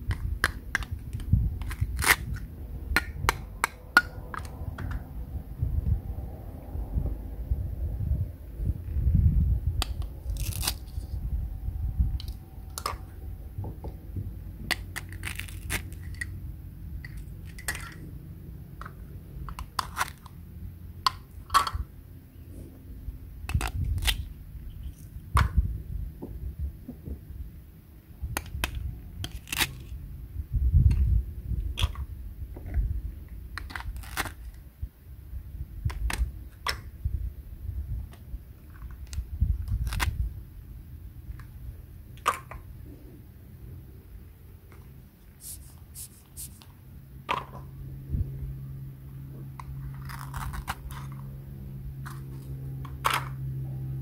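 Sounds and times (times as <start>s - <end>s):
low rumble: 0.0s - 33.6s, 42.7s - 54.0s
velcro tearing: 1.6s - 2.5s, 10.2s - 11.1s, 14.8s - 16.3s, 29.2s - 30.0s, 33.8s - 34.5s, 39.7s - 40.2s, 45.4s - 46.6s, 49.9s - 51.3s.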